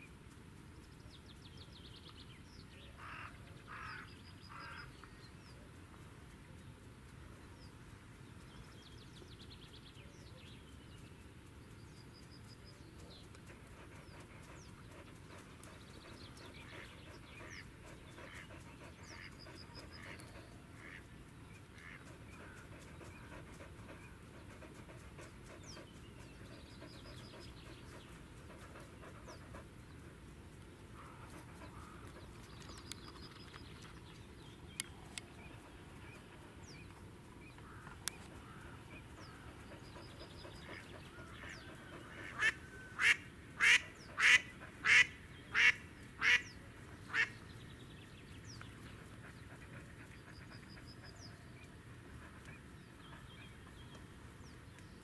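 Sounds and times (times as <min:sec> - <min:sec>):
duck quacking: 0:20.8 - 0:21.0, 0:42.2 - 0:46.4.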